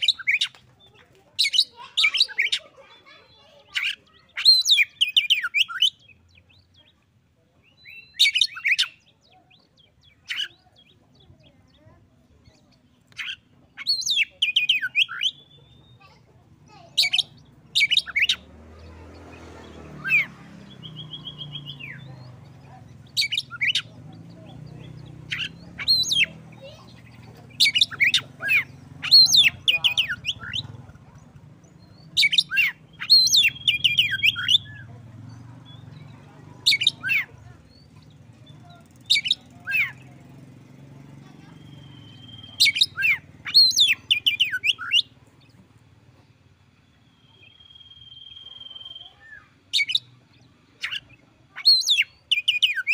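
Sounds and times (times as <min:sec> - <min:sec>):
bird singing whistles: 0:20.8 - 0:22.1, 0:32.2 - 0:34.8, 0:47.1 - 0:50.1.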